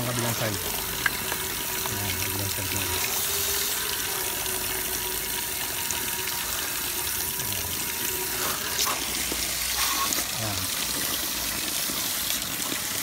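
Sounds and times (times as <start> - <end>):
hose spray hissing on metal coil: 8.1 - 11.1.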